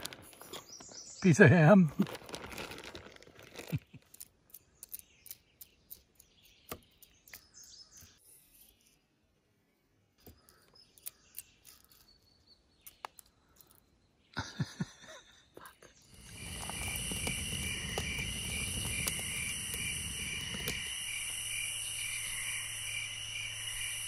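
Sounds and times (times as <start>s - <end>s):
plastic bag crinkling: 1.9s - 4.0s.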